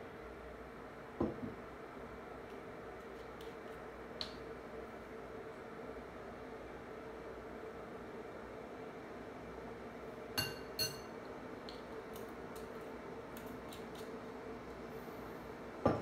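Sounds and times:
glass bottle clinks: 10.4s - 11.1s.

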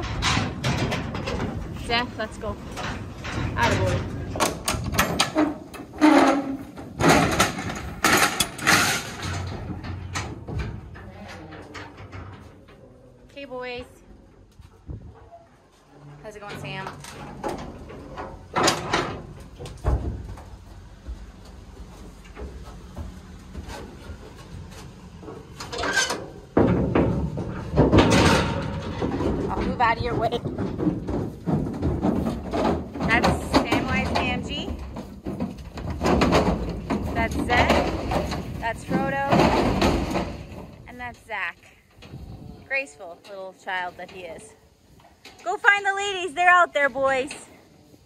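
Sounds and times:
metal gate clattering open: 0.0s - 13.0s, 16.0s - 20.2s, 23.6s - 40.8s.

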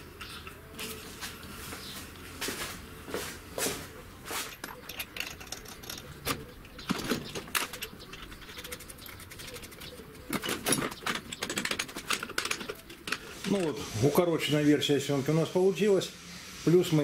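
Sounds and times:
metallic clicks and knocks: 4.5s - 13.6s.

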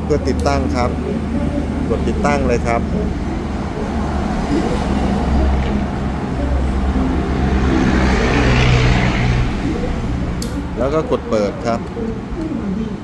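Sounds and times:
low rumble of motor vehicles: 0.0s - 13.0s.

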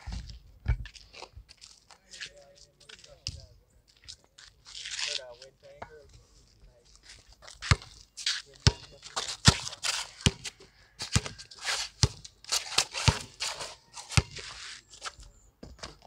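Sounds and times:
sneakers scuffing on concrete: 6.9s - 16.0s
basketball bouncing on concrete: 7.7s - 7.9s, 8.6s - 11.4s, 12.0s - 13.5s, 14.2s - 14.4s.

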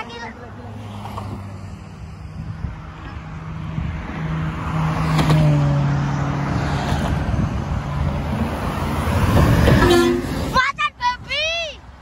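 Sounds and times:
highway traffic passing: 0.0s - 12.0s
coach engine: 7.0s - 10.7s.

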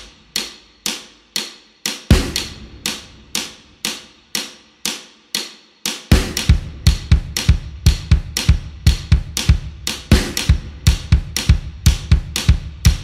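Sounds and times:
heavy kick drum beats: 0.0s - 4.5s, 5.9s - 13.0s
stomp and clap music: 0.0s - 13.0s.

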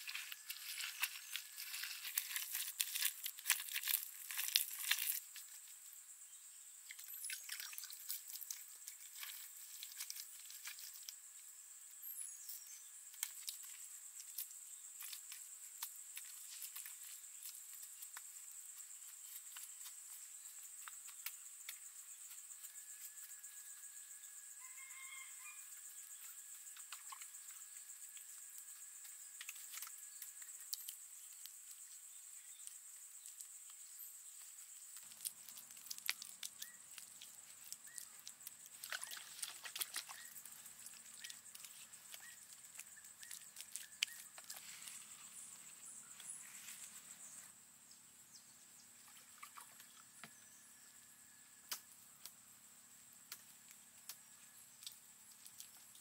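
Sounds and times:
small clicks and rustles: 0.0s - 5.8s, 6.9s - 11.2s, 13.1s - 23.3s, 26.1s - 31.9s, 32.5s - 47.0s, 53.3s - 56.0s
crickets trilling: 0.0s - 56.0s
low steady insect tone: 0.0s - 56.0s.

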